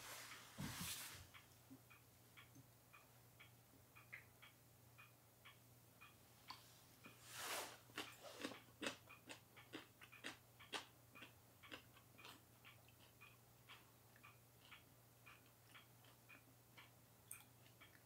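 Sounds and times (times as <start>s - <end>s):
clock ticking: 1.3s - 7.2s, 7.9s - 18.0s
person chewing crunchy food: 7.9s - 13.2s.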